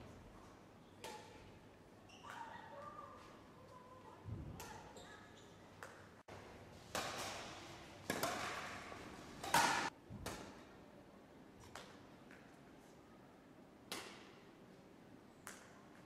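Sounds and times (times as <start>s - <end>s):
rackets hitting shuttlecock: 1.0s - 1.5s, 5.8s - 10.6s, 13.9s - 14.4s.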